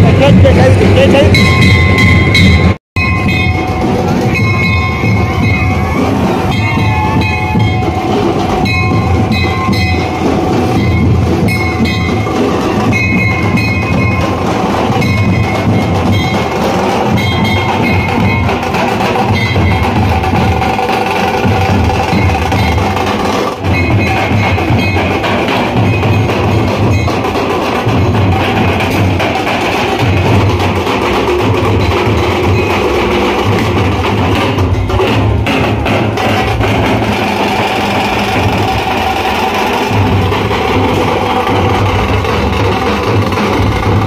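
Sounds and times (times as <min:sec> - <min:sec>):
large drums beaten hard: 0:00.0 - 0:44.0.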